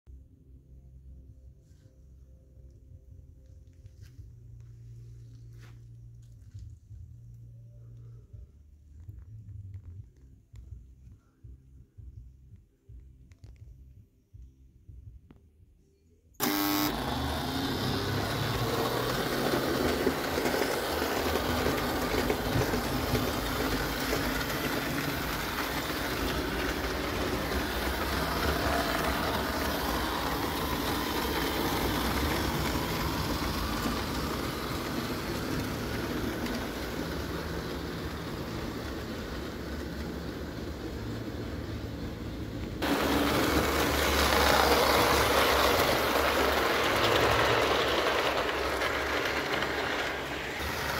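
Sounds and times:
toy train whirring and clattering: 16.4 - 50.9.

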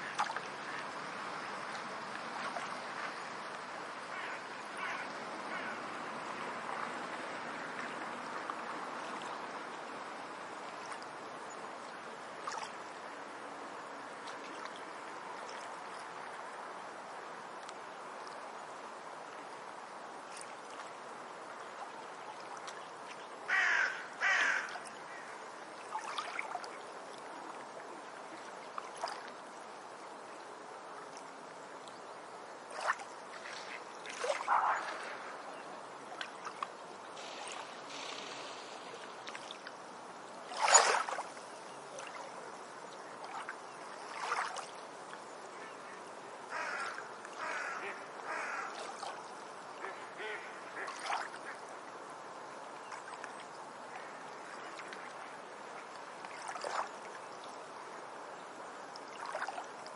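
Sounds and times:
waves washing: 0.0 - 30.1, 32.6 - 59.9.

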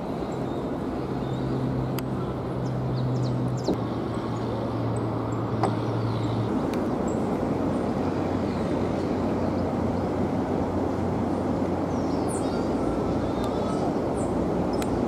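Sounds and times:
city traffic: 0.0 - 15.0
low engine hum: 0.0 - 15.0.

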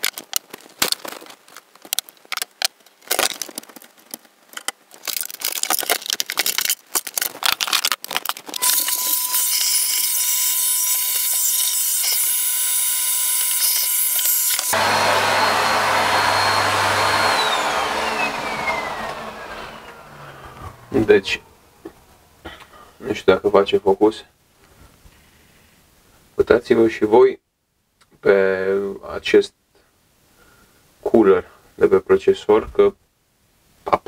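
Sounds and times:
vacuum cleaner whining: 8.6 - 10.2, 12.0 - 22.2.

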